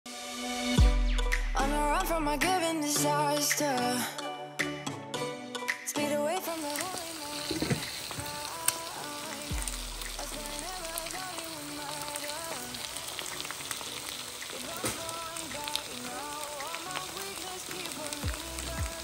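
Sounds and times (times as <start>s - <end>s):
melodic music: 0.1s - 7.5s, 8.2s - 19.0s
crackling hiss: 6.6s - 19.0s.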